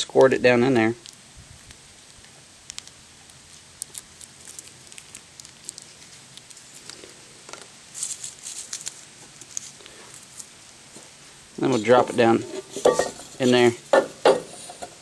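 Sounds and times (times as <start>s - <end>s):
crackles of fruit handling: 0.0s - 15.0s
plastic packet crinkling: 2.0s - 10.5s.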